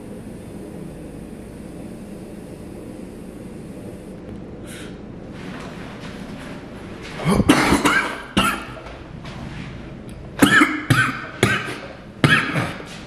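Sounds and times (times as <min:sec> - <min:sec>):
man coughing harshly: 0:07.2 - 0:08.8, 0:10.4 - 0:13.0.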